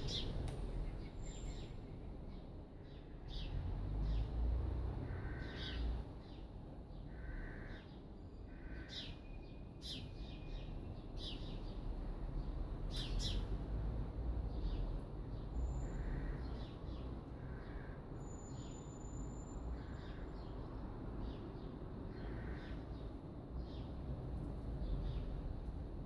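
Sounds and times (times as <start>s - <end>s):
small birds chirping: 0.0s - 4.3s.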